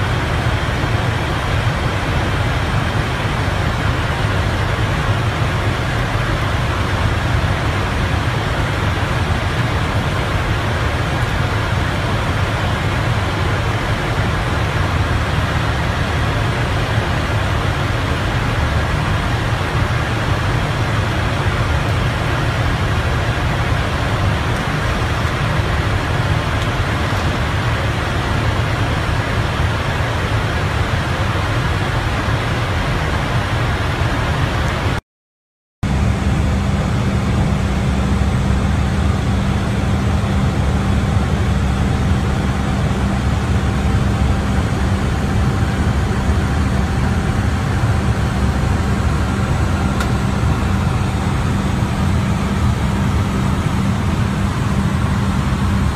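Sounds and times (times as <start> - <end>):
airflow and engine noise in cockpit: 0.0 - 35.0, 35.8 - 55.9
steady low hum: 35.8 - 55.9.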